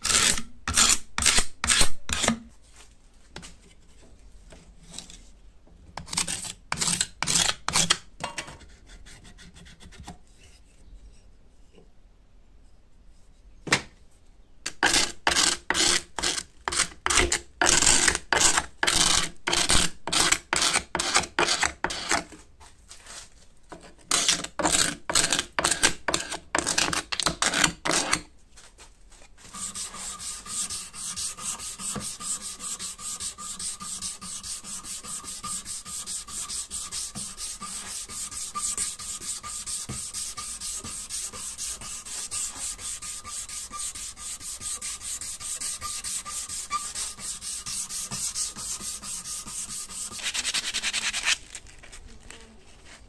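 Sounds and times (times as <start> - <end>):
abrasive strip rasping on wood: 0.0 - 2.3, 14.7 - 22.2, 24.1 - 28.3, 29.5 - 51.4
card scraper scraping wood: 0.0 - 2.4, 6.0 - 8.0, 14.7 - 22.3, 24.1 - 28.3, 29.4 - 51.4.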